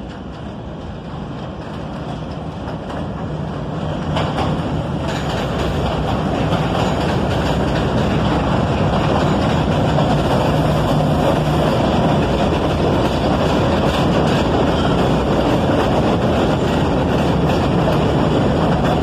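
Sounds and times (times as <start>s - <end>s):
subway train running past: 0.0s - 19.0s
train wheels clattering over rails: 0.0s - 19.0s.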